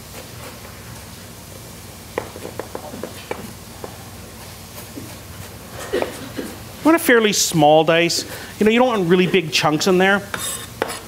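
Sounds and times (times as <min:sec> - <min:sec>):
knife chopping on wooden board: 0:10.3 - 0:11.0.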